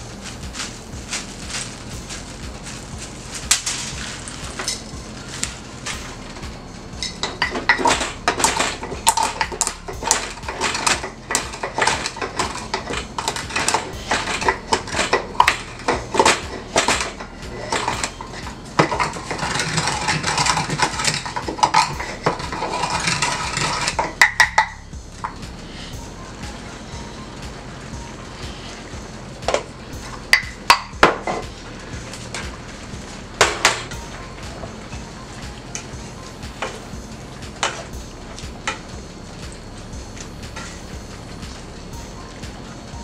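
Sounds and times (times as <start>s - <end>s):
wooden pestle pounding in mortar: 0.0s - 25.6s.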